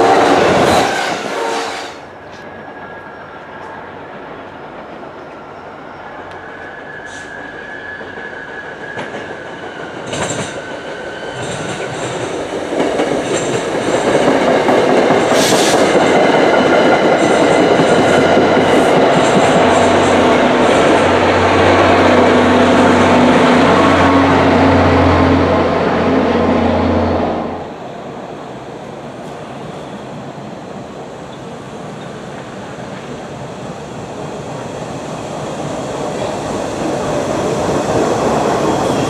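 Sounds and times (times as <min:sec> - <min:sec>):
diesel locomotive engine hum: 0:00.0 - 0:39.0
train wheels clacking over rail joints: 0:08.0 - 0:20.9.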